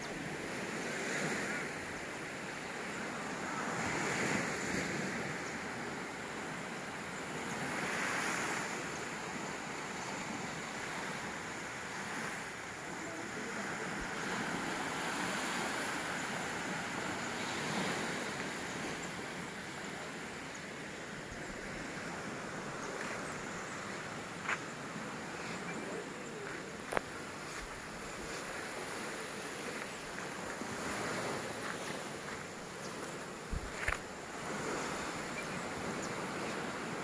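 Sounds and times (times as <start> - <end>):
small waves washing onto beach: 0.0 - 37.0
wind on microphone: 27.1 - 37.0.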